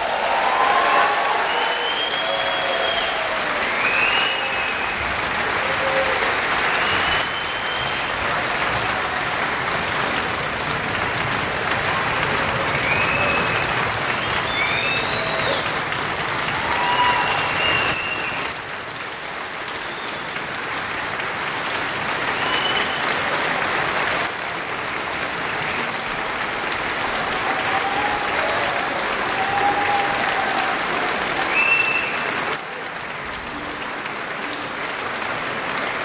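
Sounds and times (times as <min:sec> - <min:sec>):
high whoops: 0:00.0 - 0:09.2, 0:12.5 - 0:15.8, 0:16.4 - 0:18.6, 0:27.1 - 0:32.5
audience clapping: 0:00.0 - 0:36.0.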